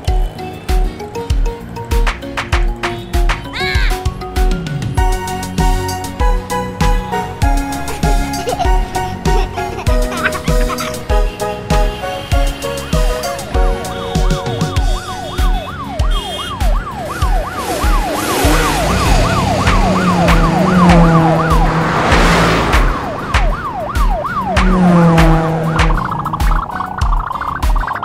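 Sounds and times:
background music with drum beat: 0.0s - 28.0s
cartoon siren yelp: 13.8s - 21.7s
whoosh: 17.6s - 26.7s.

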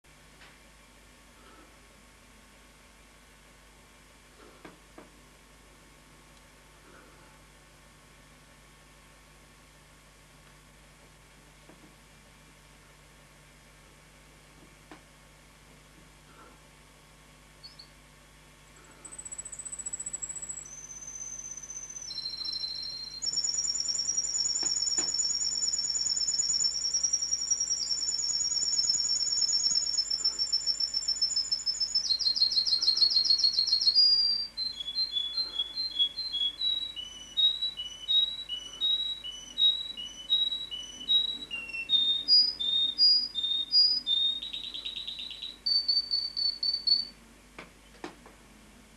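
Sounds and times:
canary singing trills: 17.6s - 18.0s, 18.9s - 47.1s.

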